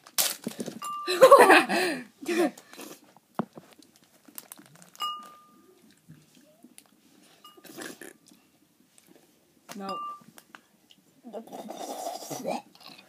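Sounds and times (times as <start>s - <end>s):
crunching while eating: 3.8s - 7.0s
short ringing clink: 5.0s - 5.6s, 9.9s - 10.3s.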